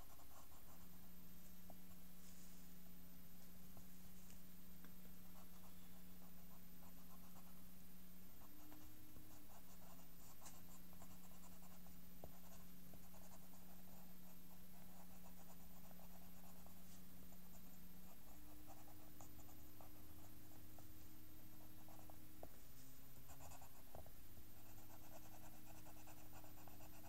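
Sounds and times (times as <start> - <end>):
steady low hum: 0.0 - 27.0
pen scratching on paper: 8.6 - 20.9, 21.5 - 22.6, 23.3 - 27.0.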